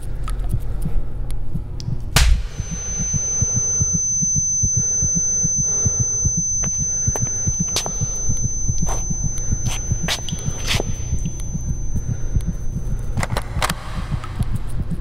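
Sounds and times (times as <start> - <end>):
hum: 0.0 - 15.0
sharp click: 1.8 - 4.0
low throbbing pulses: 2.1 - 15.0
steady high-pitched tone: 2.2 - 15.0.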